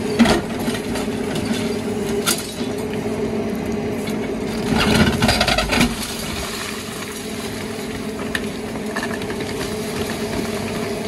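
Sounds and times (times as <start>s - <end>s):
excavator running: 0.0s - 11.0s
concrete crunching and cracking: 4.6s - 11.0s.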